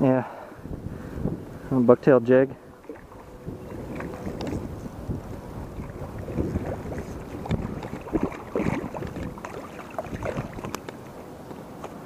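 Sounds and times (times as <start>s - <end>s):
water splashing from thrashing fish: 2.8s - 4.8s, 5.4s - 11.0s.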